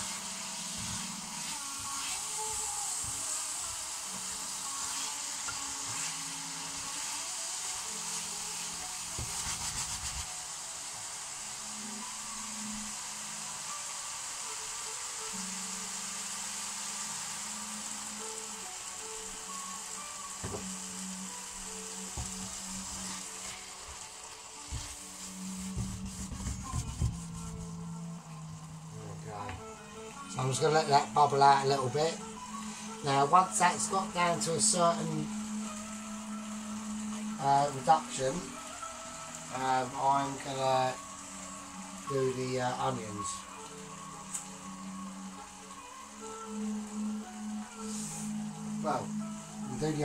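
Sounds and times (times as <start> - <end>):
food sizzling in a frying pan: 0.0 - 50.0
spoon scraping and knocking pan: 24.7 - 27.4.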